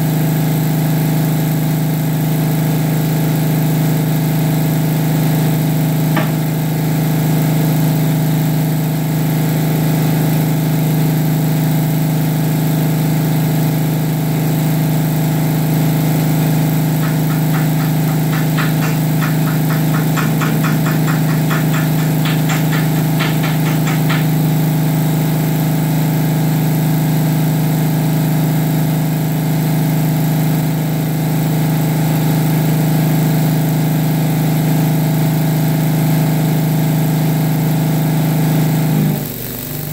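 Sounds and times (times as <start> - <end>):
engine idling: 16.6 - 24.8
quick sharp ticks: 17.0 - 24.4.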